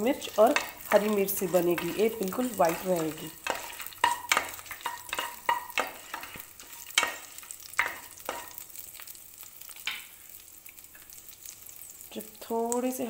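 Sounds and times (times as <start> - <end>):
light sizzle: 0.0 - 13.0
wooden spatula scraping a pan: 0.2 - 8.6.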